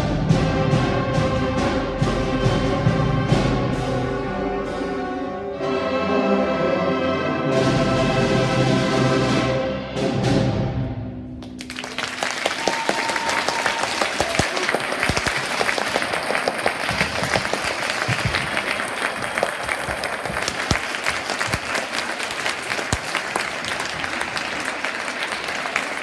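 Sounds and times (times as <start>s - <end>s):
audience applause: 11.5s - 26.0s.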